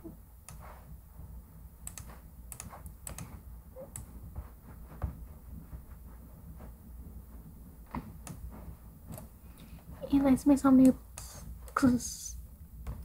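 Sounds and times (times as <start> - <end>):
low steady hum: 0.0 - 13.0
computer keys clicking: 1.8 - 3.4.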